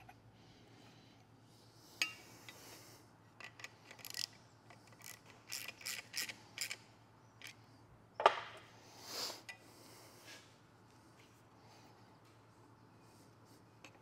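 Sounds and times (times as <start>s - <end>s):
mechanical clicks and scrapes: 3.4s - 6.8s.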